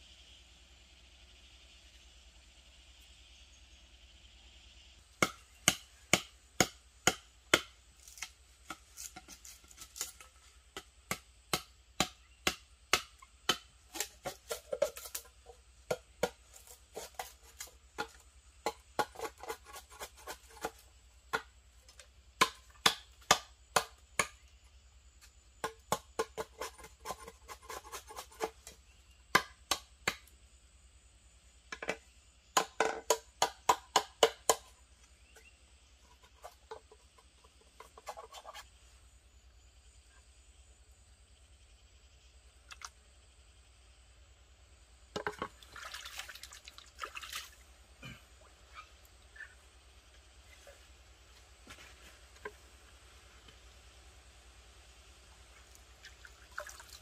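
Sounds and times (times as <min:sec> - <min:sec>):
blade chopping wood: 0:05.2 - 0:15.3, 0:22.4 - 0:24.4, 0:32.6 - 0:34.7.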